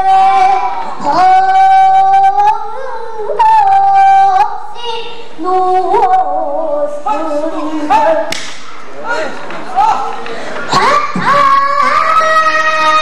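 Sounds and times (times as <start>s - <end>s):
girl singing held wavering notes: 0.0s - 8.3s.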